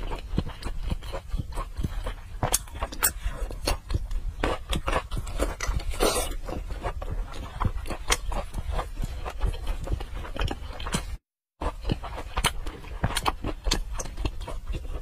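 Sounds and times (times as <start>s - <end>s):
person chewing and lip smacking: 0.0s - 15.0s.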